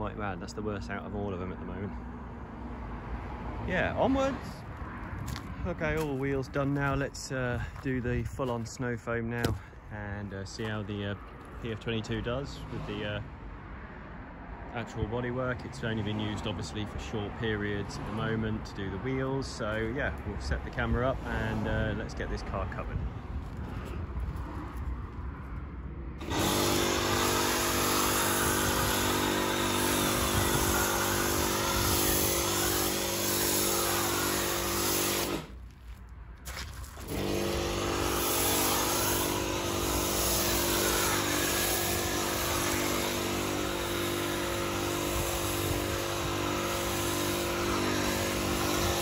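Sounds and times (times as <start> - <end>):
pressure washer motor hum: 26.2 - 35.6, 36.9 - 49.0
spray hissing: 26.3 - 35.6, 37.0 - 49.0.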